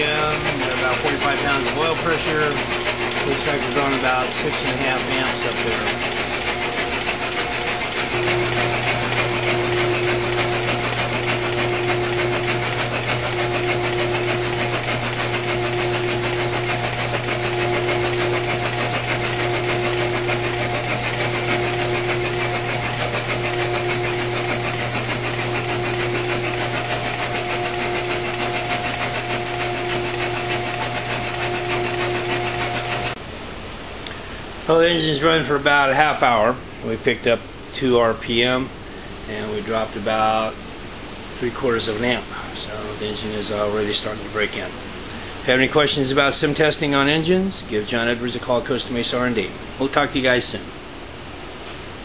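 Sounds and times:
engine valvetrain ticking: 0.0s - 33.2s
pulsing tone: 0.0s - 33.2s
steady motor hum: 0.0s - 33.2s.

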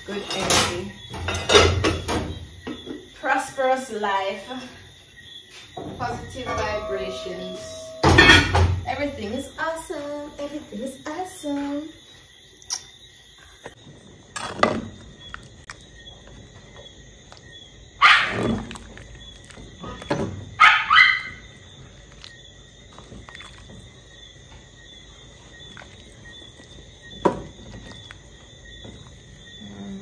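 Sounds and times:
dog barking: 18.0s - 18.7s, 20.6s - 21.4s
dog yelping: 18.0s - 18.8s, 20.6s - 21.4s.

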